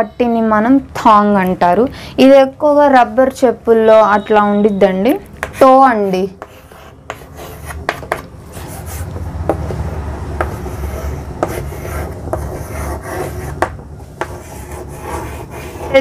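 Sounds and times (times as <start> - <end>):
chalk scratching on blackboard: 5.4 - 9.7, 10.4 - 16.0.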